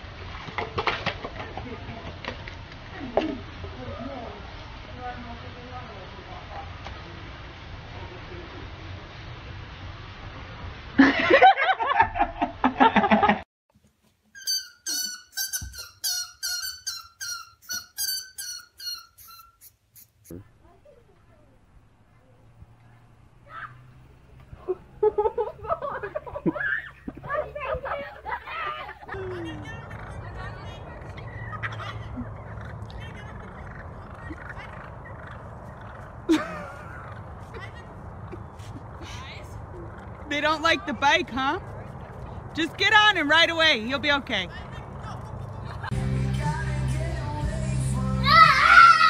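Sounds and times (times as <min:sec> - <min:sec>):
loud burst of laughter: 0:11.0 - 0:13.4, 0:24.6 - 0:30.0, 0:36.2 - 0:37.6
turkeys gobbling: 0:14.4 - 0:19.7, 0:23.4 - 0:37.6
squirrel squeaking: 0:14.4 - 0:20.5
loud falling cry: 0:48.2 - 0:49.0.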